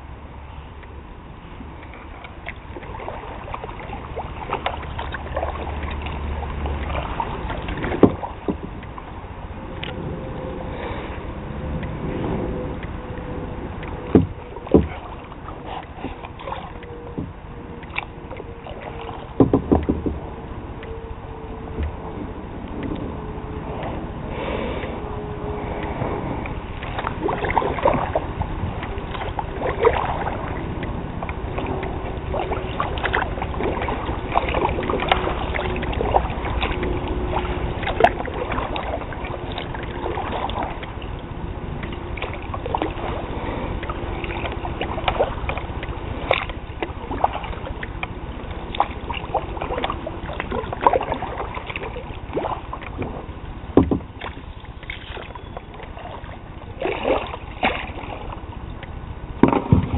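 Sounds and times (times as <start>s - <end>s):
low steady rumble: 0.0s - 59.9s
paddle strokes in water: 0.0s - 59.9s
knocks and clicks: 19.4s - 20.2s.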